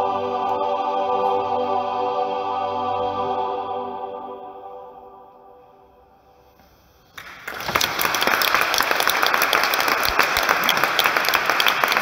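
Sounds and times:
choir final chord: 0.0 - 6.1
audience applause: 7.2 - 12.0.

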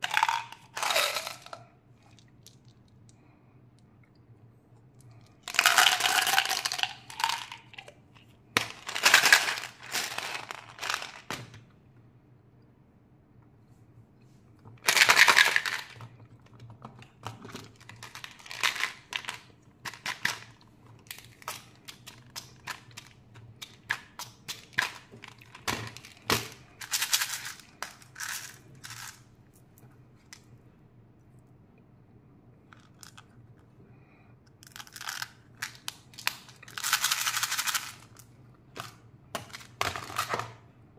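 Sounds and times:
plastic wrappers crinkling: 0.0 - 1.6, 8.6 - 11.3, 17.4 - 23.2
plastic pieces clattering: 0.0 - 2.9, 5.4 - 7.9, 8.6 - 11.6, 14.8 - 29.3, 34.6 - 40.6.

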